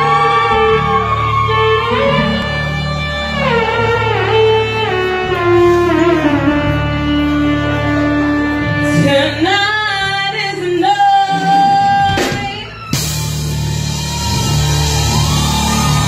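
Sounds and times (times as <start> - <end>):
bass line: 0.0 - 16.0
live band playing: 0.0 - 16.0.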